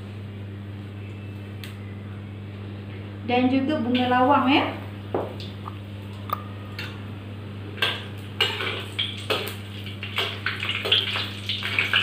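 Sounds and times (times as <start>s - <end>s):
steady low hum: 0.0s - 10.9s.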